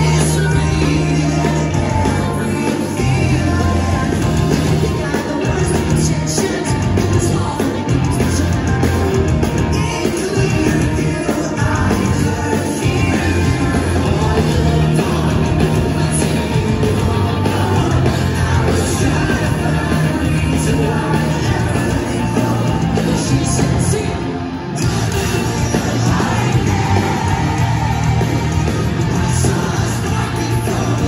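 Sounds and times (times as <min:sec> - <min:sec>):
lead singer singing: 0:00.0 - 0:31.0
pop-punk band playing live: 0:00.0 - 0:31.0.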